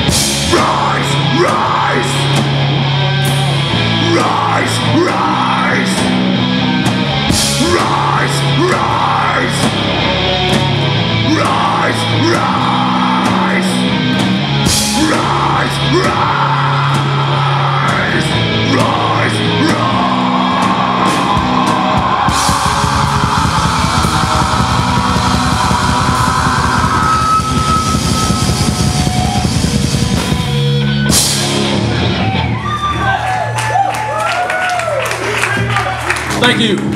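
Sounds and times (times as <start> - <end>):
bass guitar: 0.0 - 36.9
drum kit: 0.0 - 36.9
electric guitars: 0.0 - 36.9
person singing: 0.3 - 2.5, 3.8 - 6.2, 7.3 - 10.0, 11.2 - 28.3.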